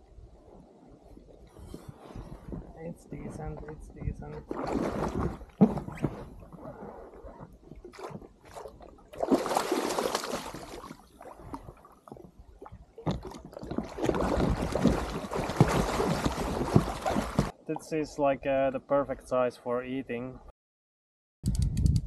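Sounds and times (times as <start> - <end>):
fish thrashing and splashing water: 4.4 - 12.0, 13.0 - 17.6.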